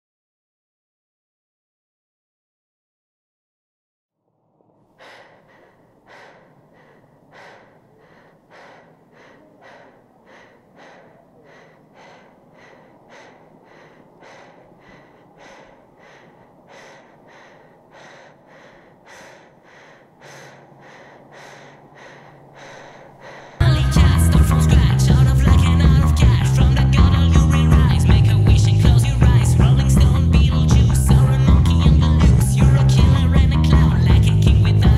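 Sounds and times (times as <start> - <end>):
low steady hum: 4.5 - 34.9
person breathing heavily: 4.9 - 28.1.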